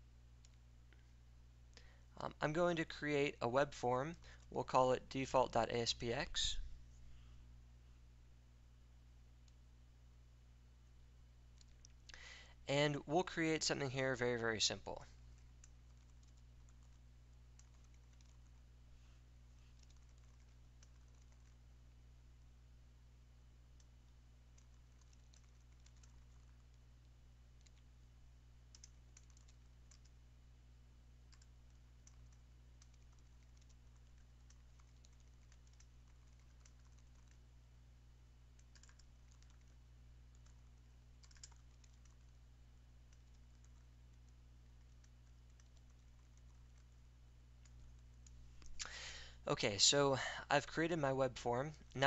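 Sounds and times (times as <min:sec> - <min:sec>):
steady low hum: 0:00.0 - 0:52.0
computer keyboard typing: 0:15.4 - 0:18.7, 0:19.6 - 0:21.6, 0:23.8 - 0:28.0, 0:28.6 - 0:30.2, 0:31.2 - 0:37.5, 0:38.4 - 0:48.4.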